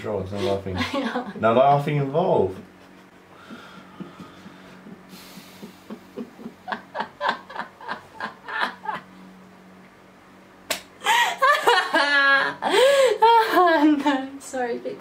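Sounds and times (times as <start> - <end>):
woman laughing: 0.4 - 1.4, 3.4 - 9.1, 11.0 - 14.3.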